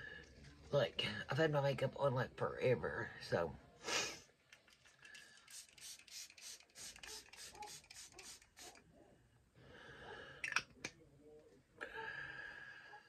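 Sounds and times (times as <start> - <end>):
soft hissing: 4.9 - 8.8
mist spray pump spritzes: 5.4 - 8.8.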